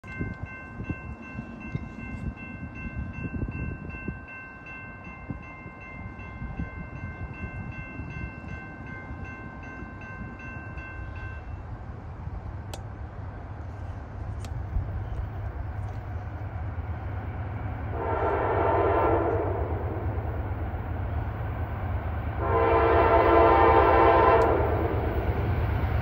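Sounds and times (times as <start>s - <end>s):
crossing warning bell ringing: 0.0s - 11.9s, 16.8s - 26.0s
steady low rumble: 11.3s - 22.5s.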